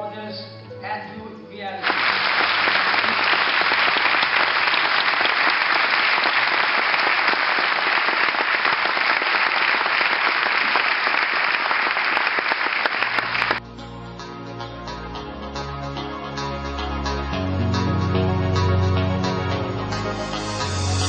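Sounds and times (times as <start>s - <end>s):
audience applauding: 1.8s - 13.6s.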